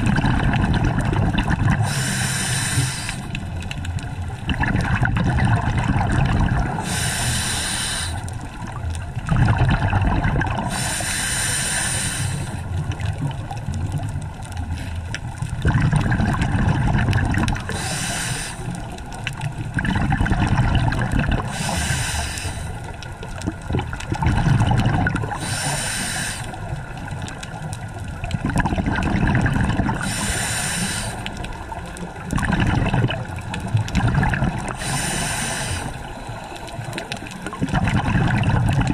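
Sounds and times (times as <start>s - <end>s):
exhaled air bubbling: 0.0s - 38.9s
diver breathing through regulator: 1.8s - 3.6s, 6.8s - 8.4s, 10.6s - 12.7s, 17.6s - 18.9s, 21.4s - 23.0s, 25.3s - 26.7s, 29.9s - 31.5s, 34.7s - 37.0s.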